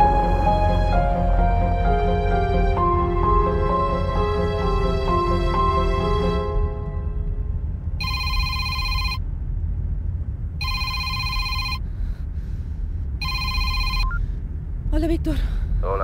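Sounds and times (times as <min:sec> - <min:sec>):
steady low rumble: 0:00.0 - 0:16.0
electronic telephone ringing: 0:08.0 - 0:09.2, 0:10.6 - 0:11.8, 0:13.2 - 0:14.2.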